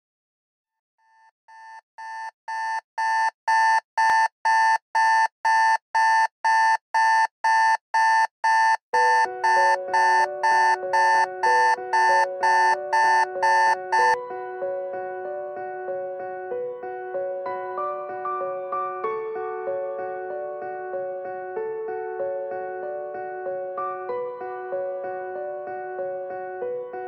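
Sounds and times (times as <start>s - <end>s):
digital alarm clock beeping: 1.5s - 14.2s.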